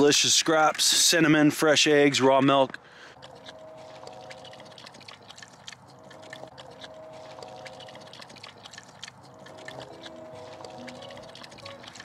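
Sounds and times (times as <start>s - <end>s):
pig eating wet food: 2.4s - 12.0s.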